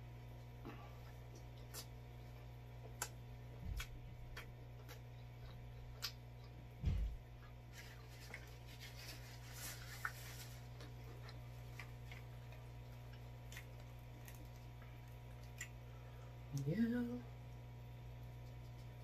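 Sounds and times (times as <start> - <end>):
low steady hum: 0.0 - 19.0
chewing with wet mouth clicks: 1.0 - 6.6, 10.8 - 15.8.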